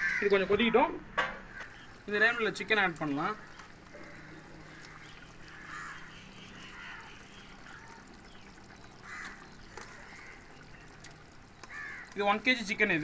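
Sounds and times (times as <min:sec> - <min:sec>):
gravy bubbling: 0:00.0 - 0:13.0
faint calls: 0:01.4 - 0:12.8.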